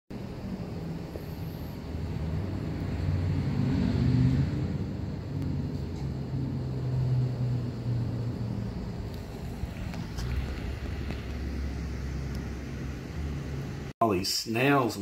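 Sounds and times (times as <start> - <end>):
motor vehicle engine hum: 0.1 - 13.9.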